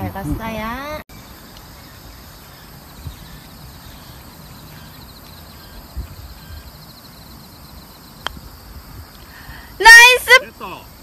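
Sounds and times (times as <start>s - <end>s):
insect trill: 1.1s - 11.0s.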